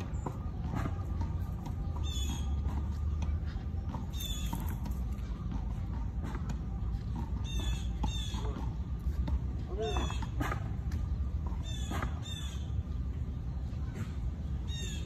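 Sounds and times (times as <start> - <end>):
bird squawking: 2.0 - 2.9, 4.1 - 4.7, 7.4 - 8.8, 9.8 - 10.6, 11.5 - 12.9, 14.6 - 15.0.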